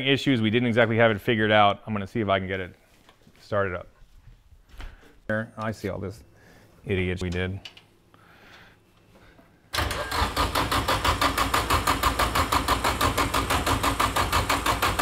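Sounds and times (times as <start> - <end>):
starter motor cranking engine: 9.7 - 15.0.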